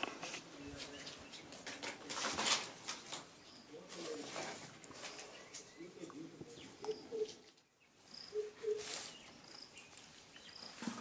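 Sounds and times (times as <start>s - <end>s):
low bird cooing: 6.5s - 7.6s, 8.2s - 9.1s
high bird chirps: 6.5s - 10.8s.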